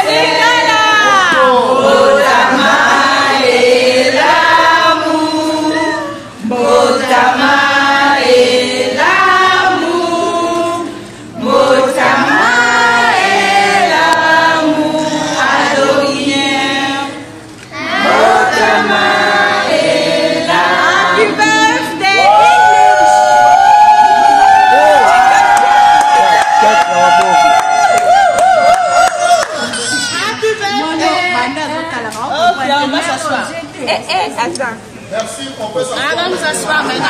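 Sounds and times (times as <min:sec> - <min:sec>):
crowd singing birthday song: 0:00.0 - 0:25.3, 0:35.1 - 0:37.0.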